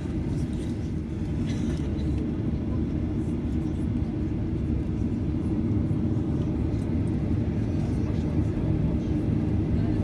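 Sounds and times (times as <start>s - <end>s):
jet engines idling in cabin: 0.0s - 10.0s.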